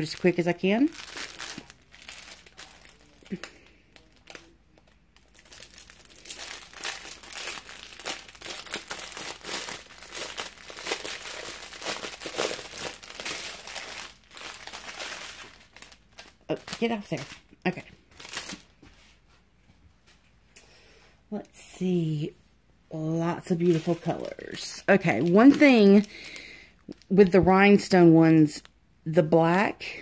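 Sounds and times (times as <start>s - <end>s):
plastic packaging crinkling: 0.0s - 18.8s, 23.3s - 27.4s.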